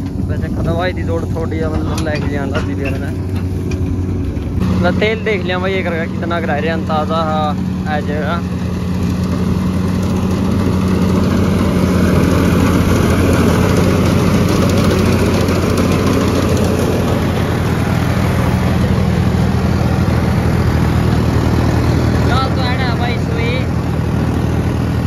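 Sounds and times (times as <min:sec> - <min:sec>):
tractor diesel engine under load: 0:00.0 - 0:25.0
reaper chopping and blowing straw: 0:07.9 - 0:22.4.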